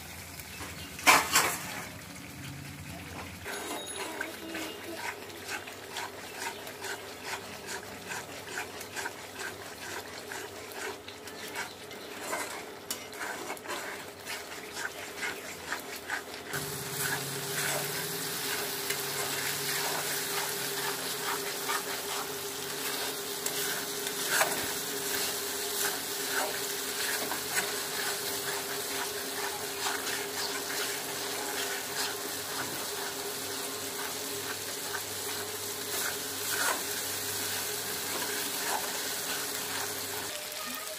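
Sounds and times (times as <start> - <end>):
spice paste sizzling in oil: 0.0 - 2.8, 3.4 - 40.9
spatula scraping a metal pan: 3.5 - 40.3.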